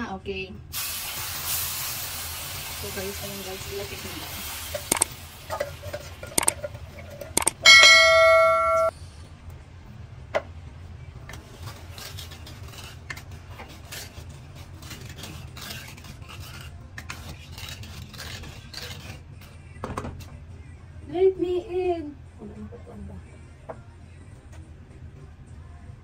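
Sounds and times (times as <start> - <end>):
spatula scraping frying pan: 3.9 - 7.4, 11.5 - 19.2
button clicks: 7.4 - 8.9
bell-like ding: 7.6 - 8.9.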